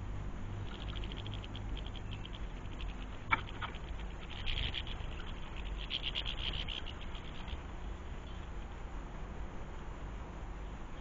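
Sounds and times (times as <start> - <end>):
low background rumble: 0.0 - 11.0
birds twittering: 0.6 - 8.6.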